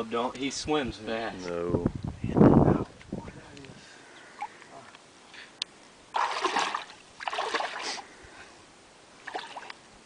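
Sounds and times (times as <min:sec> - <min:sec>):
splashy steps in shallow water: 0:06.1 - 0:07.9.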